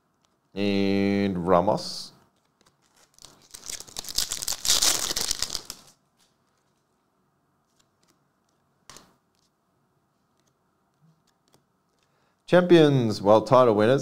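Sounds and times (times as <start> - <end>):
foil wrapper tearing and crinkling: 2.4 - 6.0.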